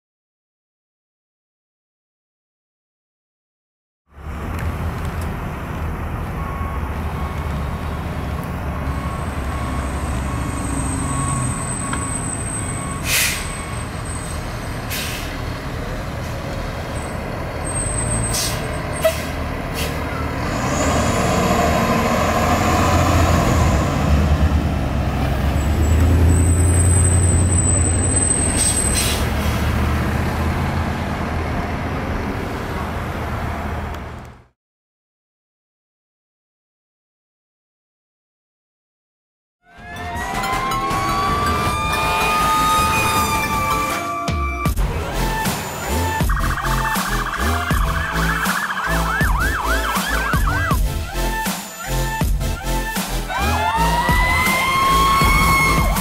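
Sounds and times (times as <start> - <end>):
air brake hisses: 13.0 - 13.6, 14.9 - 15.4, 18.2 - 20.0, 28.5 - 29.7
diesel truck engine running: 44.6 - 53.7.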